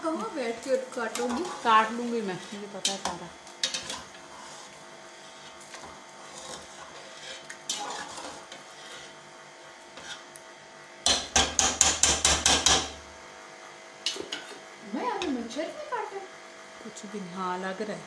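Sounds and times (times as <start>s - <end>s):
metal spatula scraping pot: 1.0s - 9.2s, 9.9s - 10.3s.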